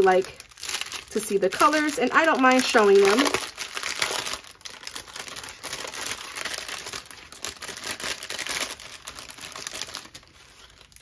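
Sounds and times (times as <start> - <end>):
plastic bags crinkling: 0.0 - 11.0.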